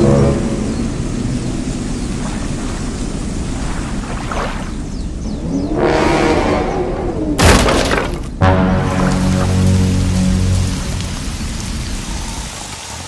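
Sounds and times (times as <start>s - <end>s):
thunder rumbling: 8.3s - 12.9s.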